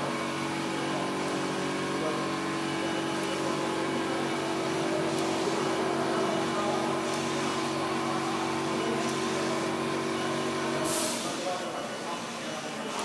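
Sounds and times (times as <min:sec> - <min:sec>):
printer machine hum: 0:00.0 - 0:13.0
faint printer ticks: 0:07.0 - 0:07.6.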